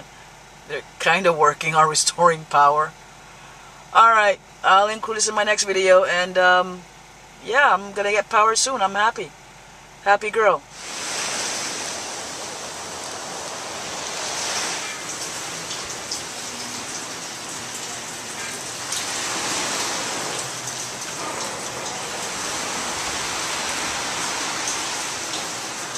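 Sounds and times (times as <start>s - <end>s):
steady rain falling: 10.7s - 25.9s
raindrop ticks: 14.9s - 22.8s, 24.2s - 25.9s.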